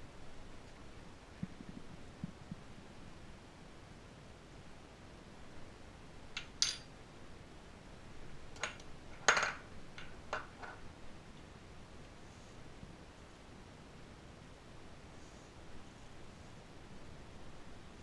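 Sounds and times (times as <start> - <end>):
metal spoon clinking on ceramic: 6.4 - 6.9.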